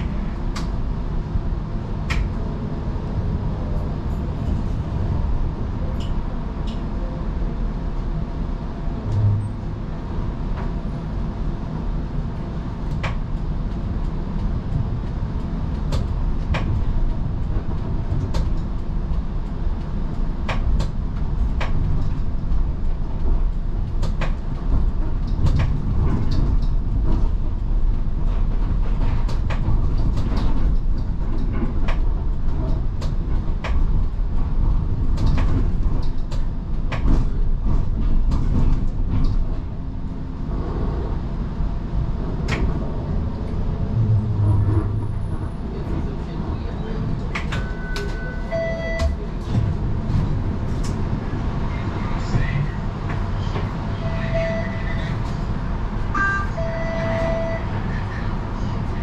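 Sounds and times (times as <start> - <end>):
streetcar rumbling on rails: 0.0 - 59.0.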